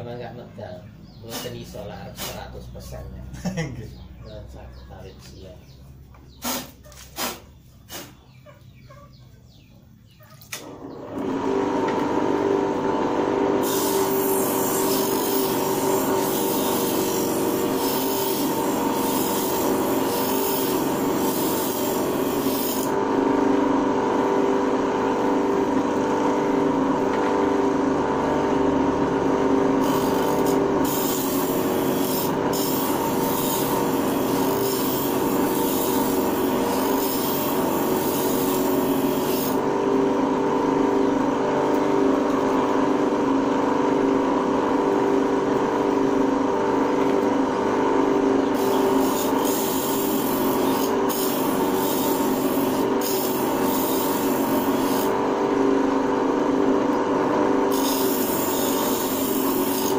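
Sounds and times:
grinding wheel motor hum: 10.5s - 59.9s
blade grinding scrape: 13.6s - 23.0s, 29.8s - 39.8s, 48.5s - 55.2s, 57.6s - 59.9s.

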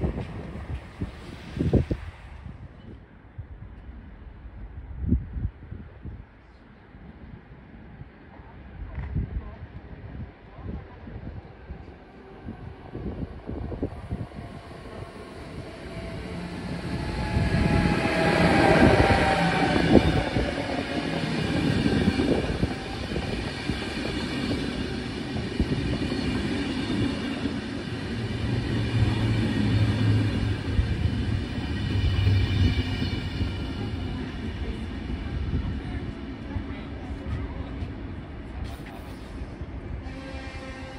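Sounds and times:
locomotive whine: 12.4s - 35.4s.

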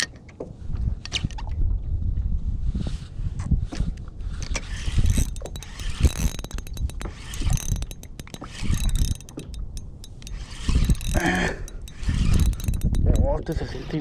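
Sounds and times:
fishing reel ratcheting clicks: 4.4s - 14.0s.

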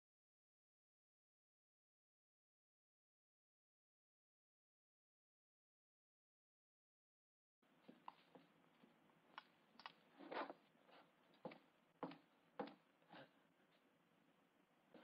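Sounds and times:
footsteps walking: 7.7s - 13.9s.

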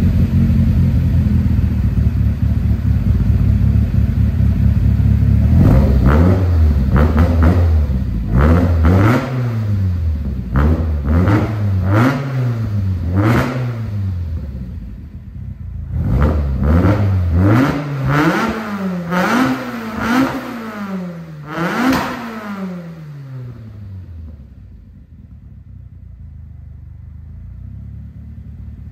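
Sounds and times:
car engine revving: 0.0s - 28.9s.

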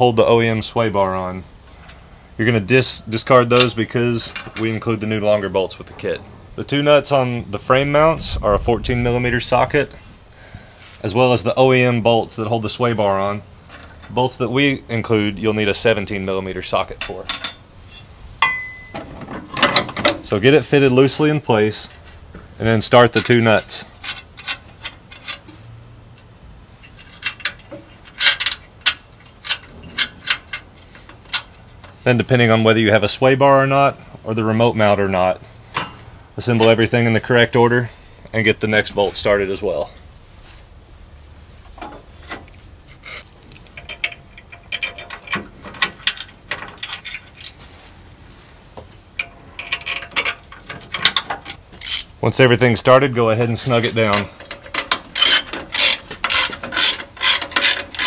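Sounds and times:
bolts clinking against metal: 3.0s - 7.2s, 13.6s - 20.4s, 23.0s - 32.0s, 35.7s - 40.0s, 41.8s - 52.2s, 53.6s - 58.0s
metallic clicks of bracket and nuts: 13.7s - 14.7s, 16.4s - 17.8s, 24.0s - 32.0s, 43.2s - 52.2s, 53.9s - 58.0s.

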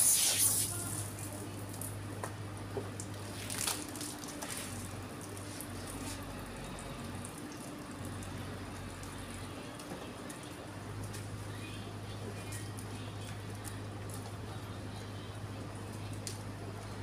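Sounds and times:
brief hissing spurts: 0.0s - 1.0s
hose water splashing on concrete: 0.0s - 1.8s, 3.0s - 6.3s
steady low hum: 0.0s - 17.0s.

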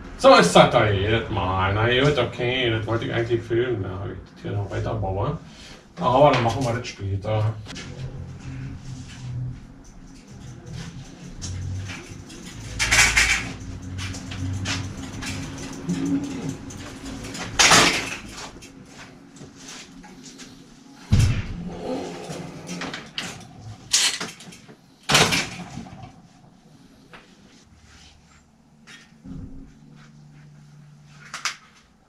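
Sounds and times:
bicycle metal clanks: 11.3s - 18.8s.

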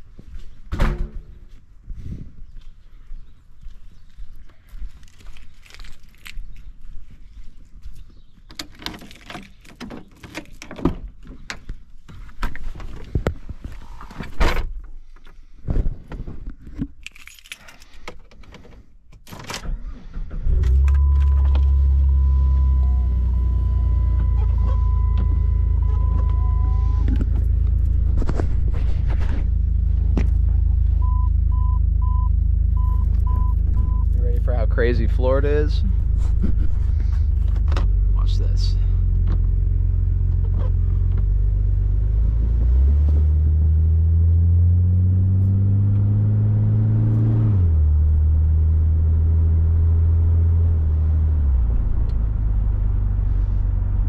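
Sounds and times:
car engine running: 20.6s - 54.0s
quick beeps: 20.8s - 27.1s, 31.0s - 34.1s.

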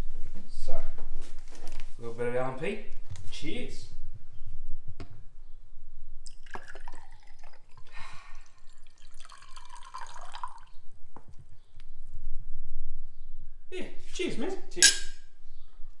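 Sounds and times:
fizzy drink poured into glass: 6.3s - 10.8s.

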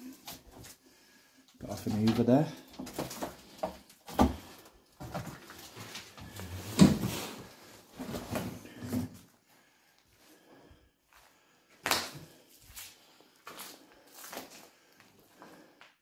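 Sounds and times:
footsteps on debris: 11.1s - 16.0s.

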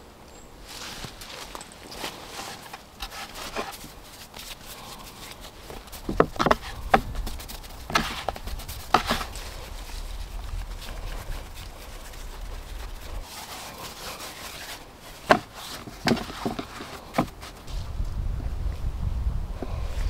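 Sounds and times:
hands patting and rubbing dough: 3.0s - 17.8s.

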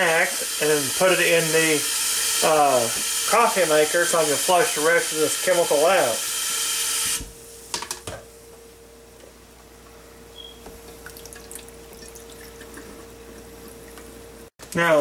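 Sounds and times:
tap water running into sink: 10.7s - 14.1s.

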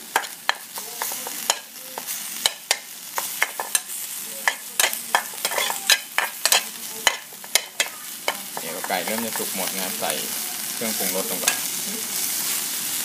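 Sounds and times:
food sizzling: 0.0s - 13.0s
metal spatula scraping a pan: 0.2s - 10.0s.

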